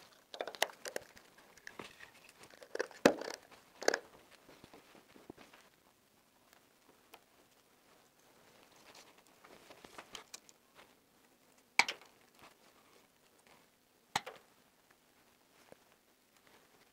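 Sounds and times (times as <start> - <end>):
wires rustling and scraping: 0.0 - 13.8.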